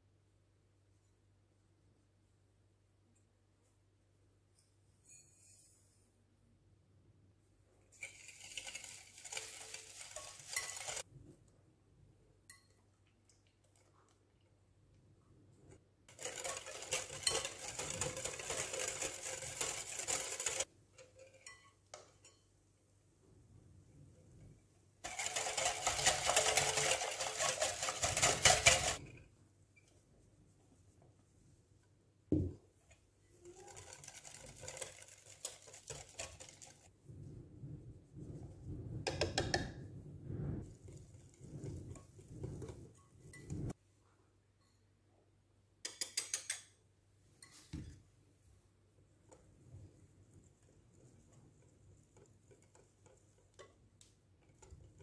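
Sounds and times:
whisk rattling in glass bowl: 7.9s - 11.1s, 16.1s - 22.4s, 25.0s - 29.1s, 32.8s - 36.9s, 40.5s - 43.8s, 49.3s - 55.0s.

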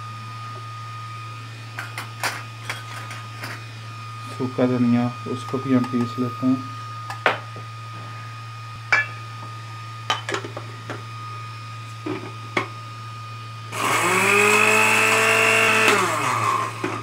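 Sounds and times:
blender motor whining: 9.6s - 17.0s.

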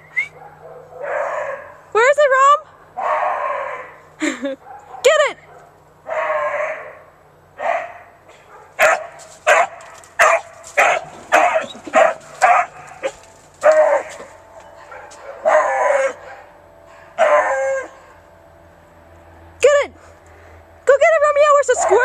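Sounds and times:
dog barking and baying: 0.4s - 1.8s, 3.0s - 4.0s, 4.6s - 7.0s, 7.6s - 18.2s, 21.8s - 22.0s.

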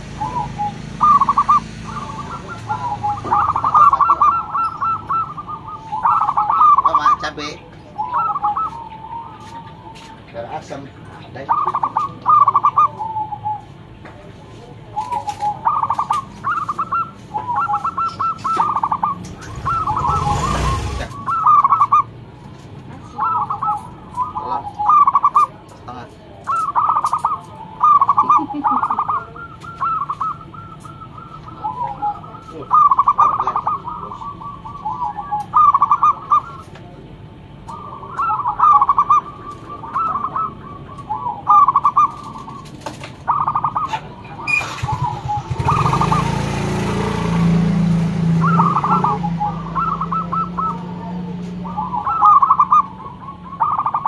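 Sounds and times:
dove cooing: 0.0s - 22.3s, 22.9s - 54.0s.

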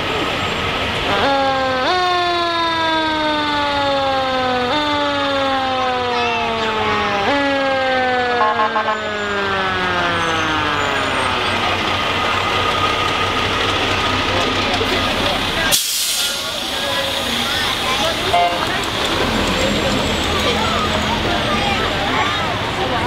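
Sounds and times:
mechanical siren wailing: 1.4s - 12.7s
stuttering high tone: 17.4s - 22.2s.

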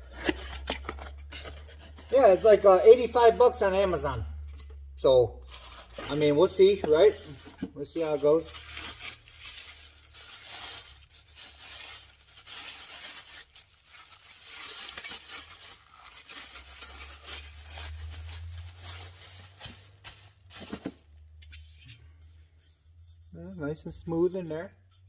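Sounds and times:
plastic bag crinkling: 5.4s - 21.2s.

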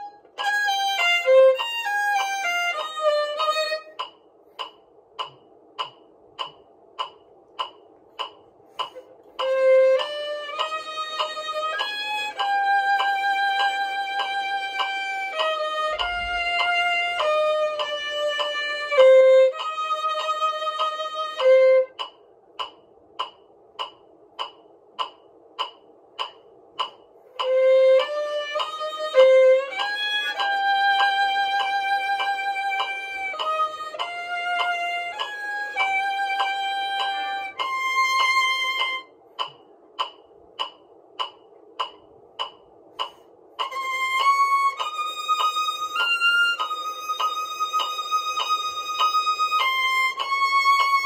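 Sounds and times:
solo violin melody: 0.0s - 4.0s, 9.3s - 22.0s, 27.4s - 39.1s, 43.7s - 51.0s
short even ticks: 0.0s - 51.0s.

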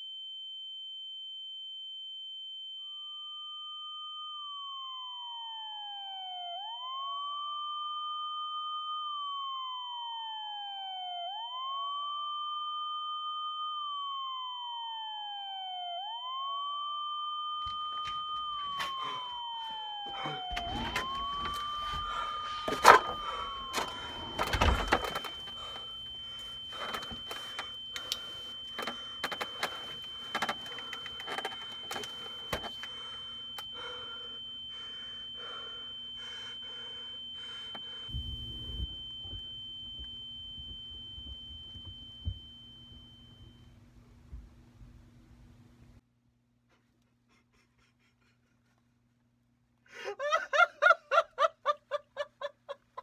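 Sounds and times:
high ringing tone: 0.0s - 14.8s, 16.5s - 43.8s
siren-like wail: 3.4s - 43.5s
low hum: 17.5s - 46.0s
knocks and clicks: 28.8s - 32.9s.

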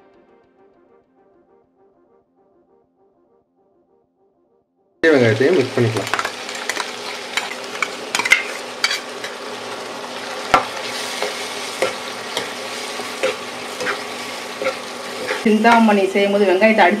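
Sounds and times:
onions sizzling in hot oil: 5.0s - 17.0s
metal spatula scraping a pan: 6.1s - 9.5s, 10.5s - 15.9s.

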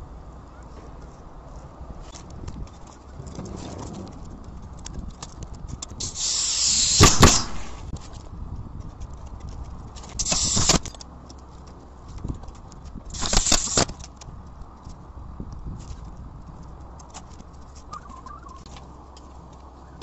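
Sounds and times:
shingles scraping: 2.0s - 8.3s, 9.1s - 14.2s.

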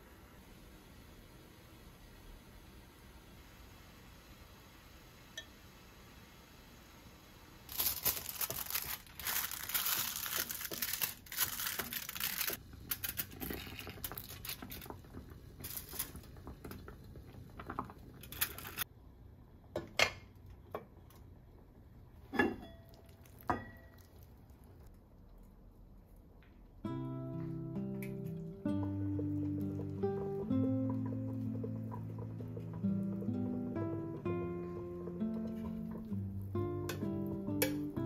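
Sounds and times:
aluminium foil crinkling: 7.6s - 15.0s, 15.6s - 16.3s, 18.2s - 18.8s.

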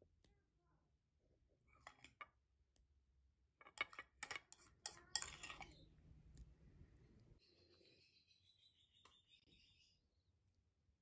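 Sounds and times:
metal spoon clinking on ceramic bowl: 3.8s - 5.8s.

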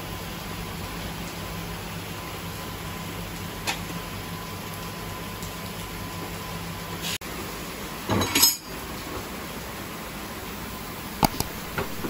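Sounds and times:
workshop machinery hum: 0.0s - 12.0s.

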